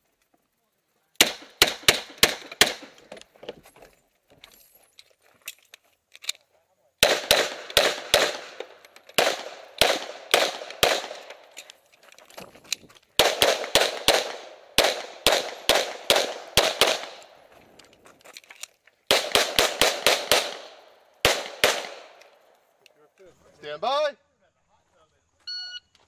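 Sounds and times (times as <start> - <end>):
pistol shots echoing: 1.2 - 3.0, 7.0 - 11.6, 13.2 - 17.4, 19.1 - 22.5.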